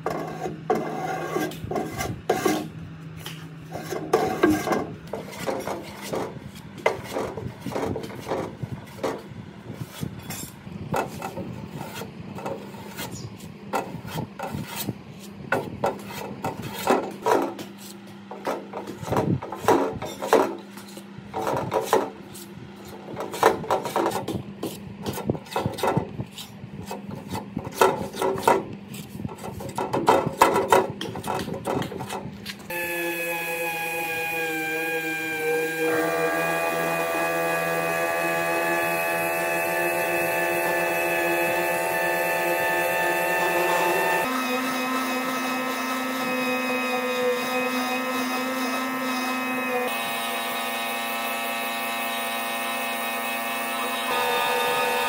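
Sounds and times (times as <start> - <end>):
putty knife scraping metal: 0.0 - 9.2, 9.8 - 32.6.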